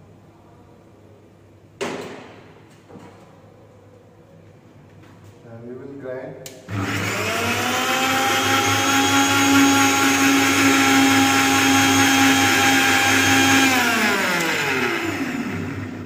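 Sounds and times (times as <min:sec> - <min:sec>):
mixer grinder motor whining: 0:06.7 - 0:16.0.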